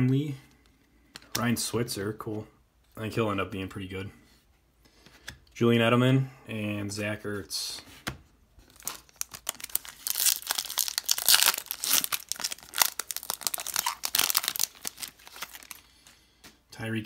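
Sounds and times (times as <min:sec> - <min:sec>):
foil wrapper crinkling and tearing: 0:08.6 - 0:15.9.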